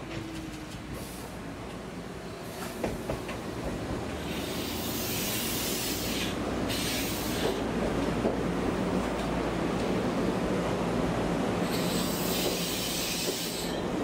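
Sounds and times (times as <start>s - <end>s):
loud hiss: 4.3s - 7.6s, 11.7s - 13.7s.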